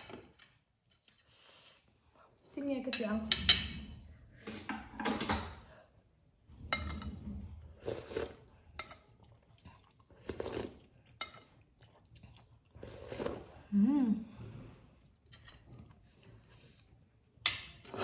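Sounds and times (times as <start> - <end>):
cutlery clinking on ceramic plates: 17.4 - 18.0.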